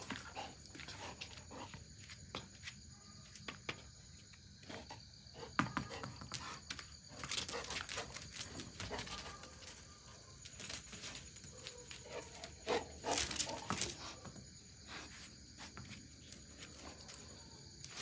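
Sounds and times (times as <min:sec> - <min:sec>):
high insect trill: 0:00.0 - 0:18.0.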